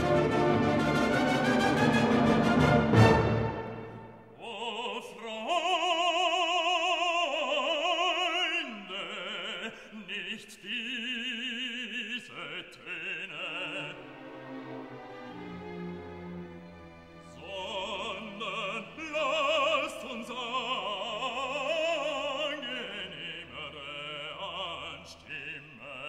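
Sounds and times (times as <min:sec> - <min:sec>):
orchestral music: 0:00.0 - 0:04.4, 0:13.5 - 0:23.2
operatic singing with vibrato: 0:00.0 - 0:26.0.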